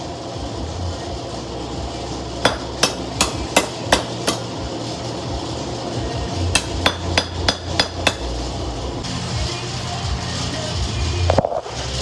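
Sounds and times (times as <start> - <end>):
hammer striking metal on anvil: 2.4 - 4.6, 6.5 - 8.4.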